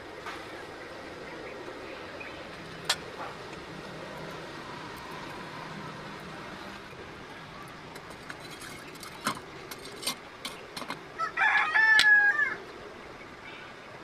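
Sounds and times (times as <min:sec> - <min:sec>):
rooster crowing: 0:11.2 - 0:12.6.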